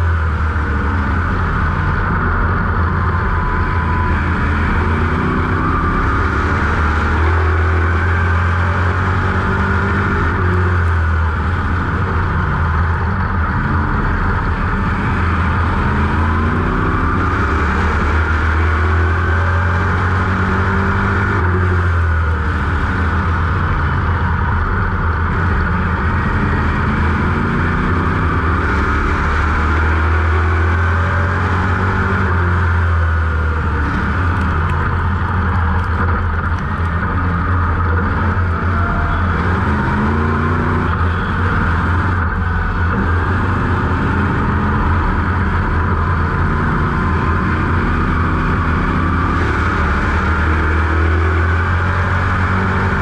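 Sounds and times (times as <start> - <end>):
race car engine revving: 0.0 - 53.0.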